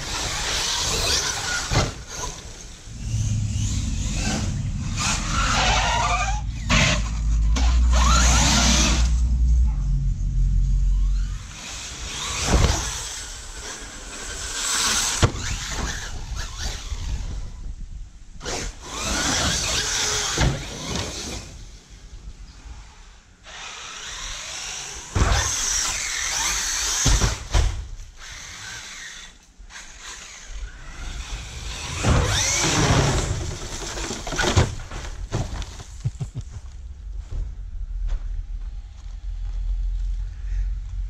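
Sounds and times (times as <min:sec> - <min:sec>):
toy truck electric motor whining: 0:00.0 - 0:09.2, 0:11.0 - 0:17.4, 0:18.4 - 0:21.6, 0:23.4 - 0:27.4, 0:28.2 - 0:34.7.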